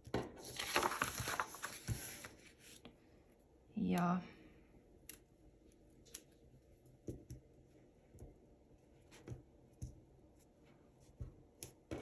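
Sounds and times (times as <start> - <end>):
paper handling: 0.3 - 2.9.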